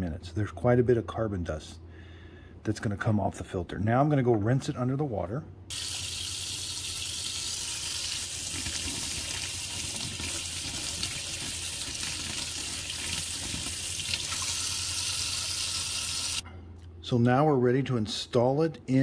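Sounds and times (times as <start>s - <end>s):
faucet water splashing into sink: 5.7s - 16.4s.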